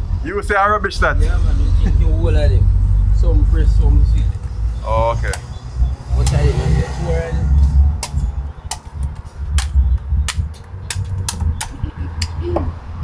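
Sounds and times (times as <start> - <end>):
low steady rumble: 0.0 - 12.5
machete chopping coconut husk: 8.0 - 12.4.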